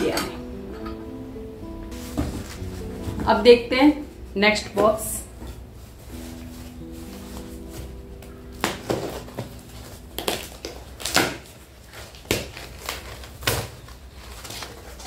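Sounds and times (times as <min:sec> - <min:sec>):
knife slitting packing tape: 0:10.2 - 0:15.0.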